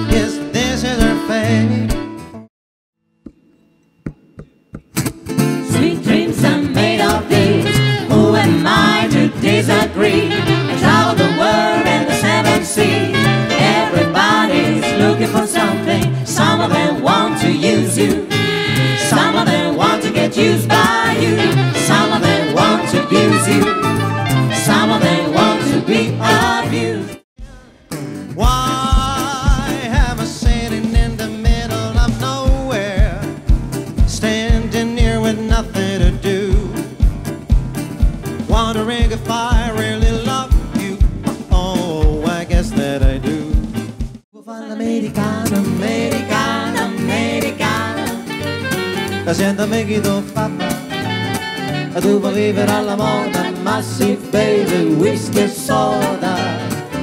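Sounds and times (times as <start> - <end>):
acoustic guitar: 0.0 - 2.5, 3.2 - 57.0
live band music: 4.1 - 44.2, 45.0 - 57.0
piano: 5.3 - 27.2, 27.9 - 44.2, 45.0 - 57.0
singers in close harmony: 5.7 - 27.2, 44.5 - 48.2, 52.0 - 57.0
kick drum beat: 28.4 - 44.2.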